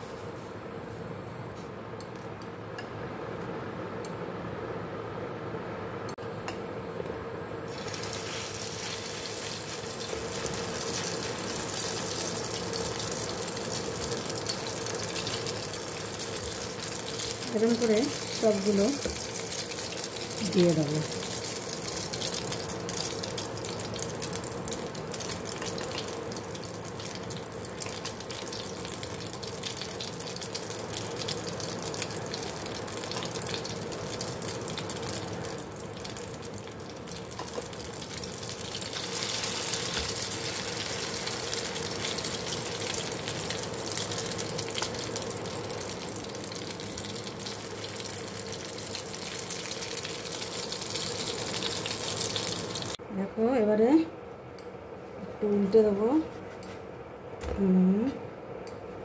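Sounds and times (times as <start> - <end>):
faint steady hum: 0.0 - 59.0
patties sizzling in oil: 7.6 - 53.0.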